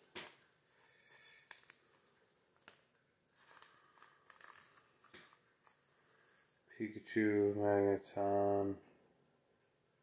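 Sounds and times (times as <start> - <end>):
trading cards flipped by hand: 1.0 - 5.8.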